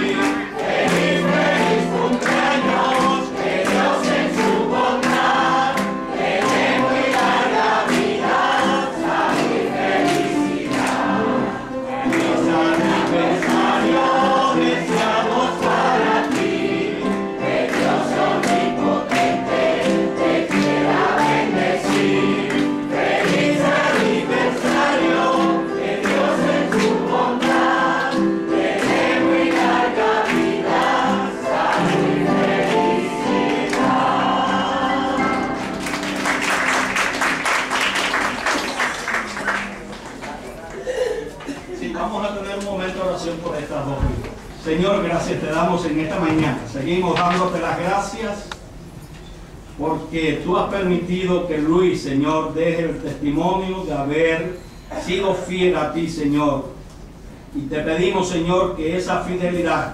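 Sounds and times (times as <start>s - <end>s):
congregation singing: 0.0s - 40.4s
piano accompaniment: 0.0s - 40.7s
people clapping: 0.0s - 41.7s.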